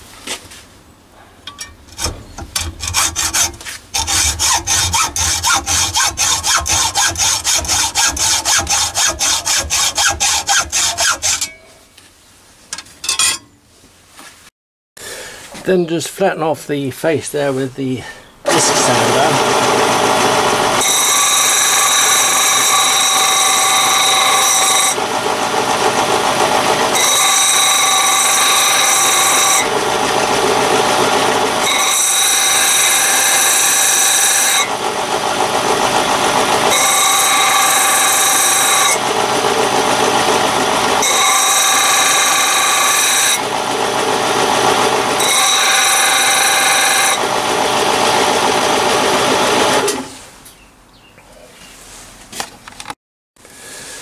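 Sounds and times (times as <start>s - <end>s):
disc sander whining and grinding: 18.5s - 50.1s.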